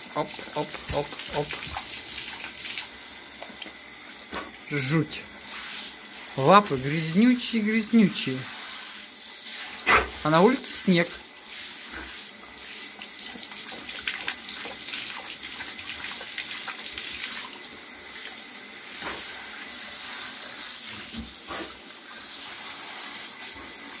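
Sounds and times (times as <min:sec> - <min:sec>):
shower water running into bathtub: 0:00.0 - 0:24.0
dog lapping water: 0:00.2 - 0:04.6, 0:12.8 - 0:18.4.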